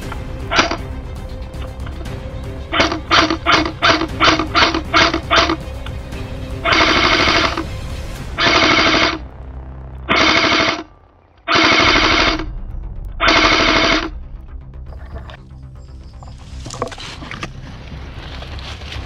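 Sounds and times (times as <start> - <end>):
background music: 0.0 - 19.0
automatic gunfire: 10.1 - 10.8, 11.5 - 12.4.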